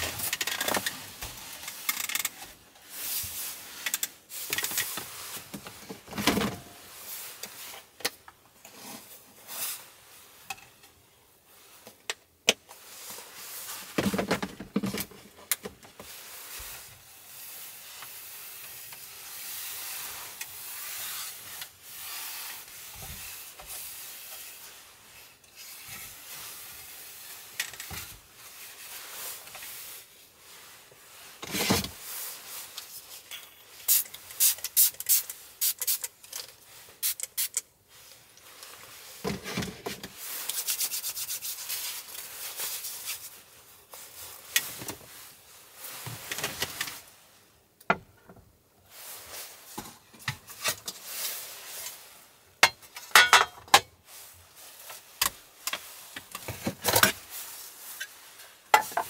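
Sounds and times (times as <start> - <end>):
spray bottle squirts: 33.9 - 36.1, 37.0 - 37.6.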